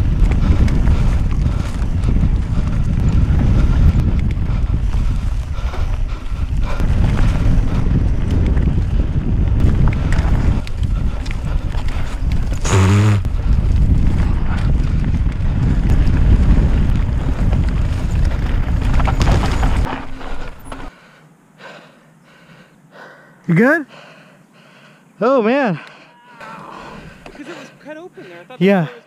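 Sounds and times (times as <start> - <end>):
wind buffeting microphone: 0.0 - 20.9
bike rattling over dirt trail: 0.0 - 21.0
person shouting: 26.1 - 26.8.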